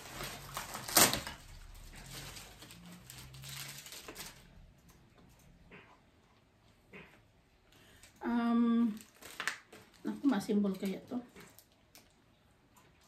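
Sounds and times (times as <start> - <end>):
plastic packaging crinkling: 0.0 - 4.7, 8.0 - 12.2
sharp plastic crackle: 0.0 - 5.1, 7.9 - 12.3.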